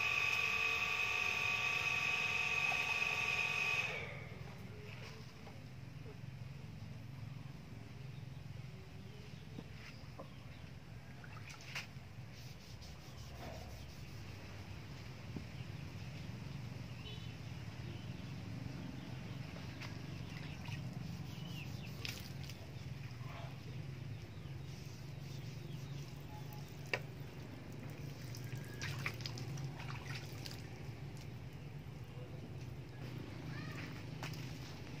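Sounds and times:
water dripping and trickling: 26.5 - 31.6.

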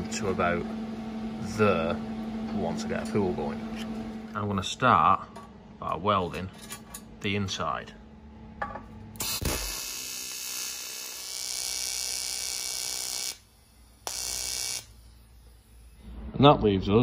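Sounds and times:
welding arc buzzing hiss: 9.1 - 16.2.

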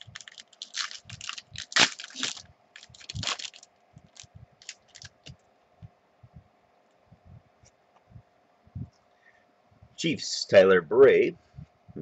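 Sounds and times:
foil wrapper crinkling and tearing: 0.0 - 5.3.

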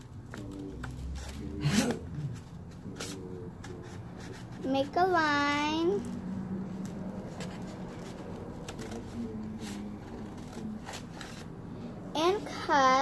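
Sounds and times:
paper rustling: 0.0 - 12.4
scissors snipping paper: 5.9 - 11.5.

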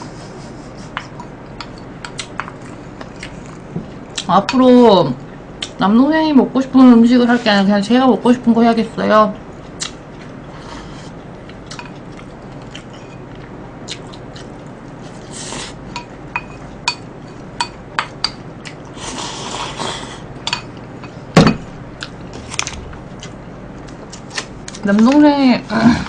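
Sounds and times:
bowl knocking on table: 21.4 - 21.7.

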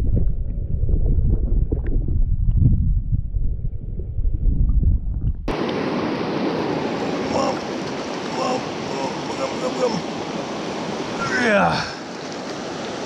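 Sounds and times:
underwater river current rumble: 0.0 - 13.0
fast-flowing river water hiss: 5.5 - 13.0.

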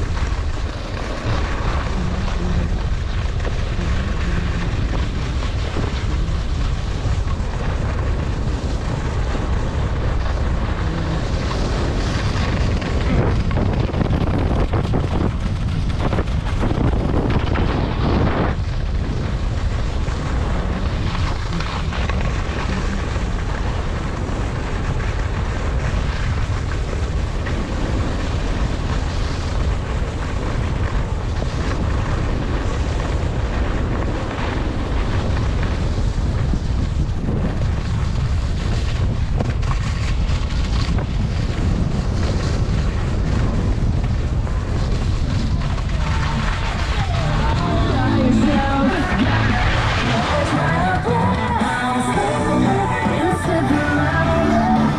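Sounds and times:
skis sliding on snow: 0.0 - 54.9
wind buffeting microphone: 0.0 - 54.9.

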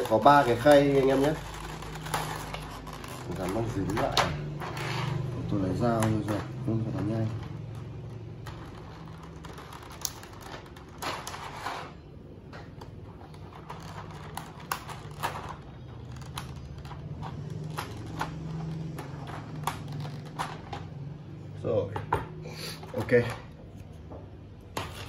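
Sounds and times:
knife scraping tape: 0.0 - 5.3, 7.2 - 12.1.

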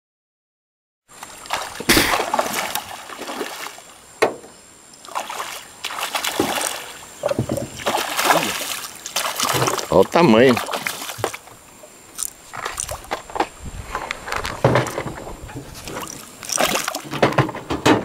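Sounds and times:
fish splashing in water: 1.1 - 4.0, 5.0 - 13.4, 15.6 - 17.3.

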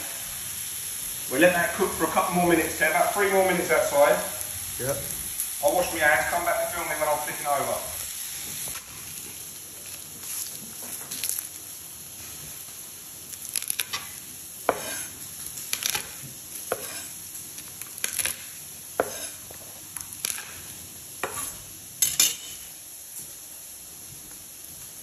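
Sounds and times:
steak sizzling in a frying pan: 0.0 - 25.0
garlic crushed on wooden board: 13.4 - 14.1, 15.7 - 17.0, 17.6 - 19.3, 20.2 - 20.6.

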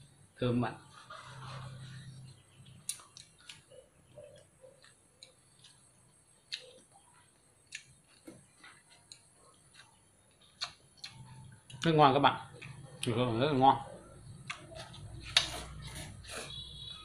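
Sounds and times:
mouth sounds of eating: 1.2 - 16.5.

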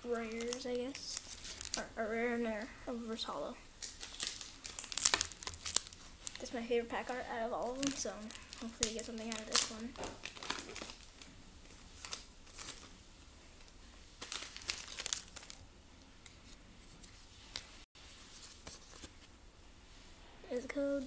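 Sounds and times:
foil wrapper tearing and crinkling: 0.2 - 1.9, 3.8 - 11.3, 11.9 - 12.9, 14.1 - 15.6.

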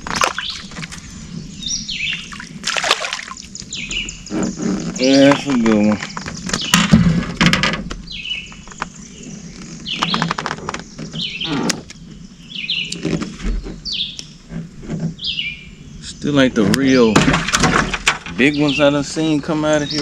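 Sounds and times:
bird chirping: 0.0 - 7.3, 7.9 - 20.0
fish clattering in boat: 0.0 - 9.0, 16.8 - 20.0.

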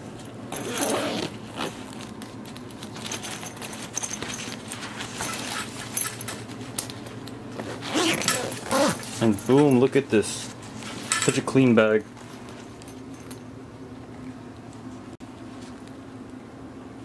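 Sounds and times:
metal zipper pulls clinking: 0.5 - 1.8, 7.6 - 9.2
zipper being pulled closed: 0.5 - 1.9, 7.6 - 9.1.

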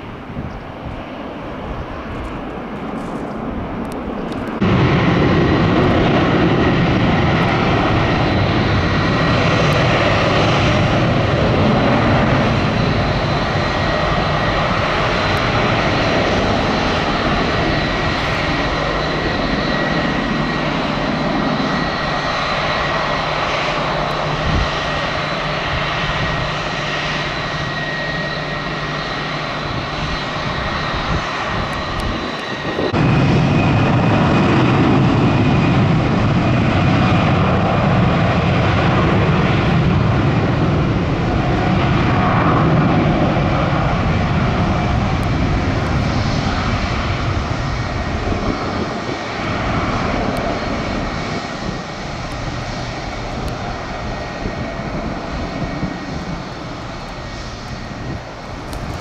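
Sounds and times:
jet engines with high whine: 0.0 - 59.0.

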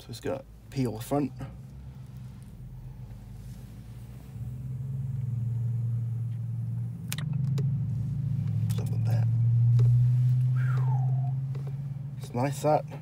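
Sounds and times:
car engine hum: 0.0 - 13.0.

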